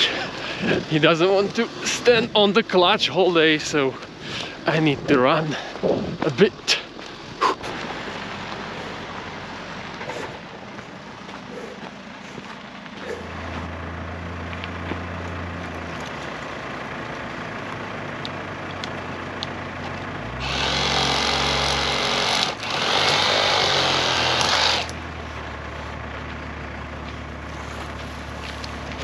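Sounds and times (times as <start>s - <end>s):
vehicle engine idling: 0.0s - 29.0s
power saw cutting branch: 20.3s - 25.0s.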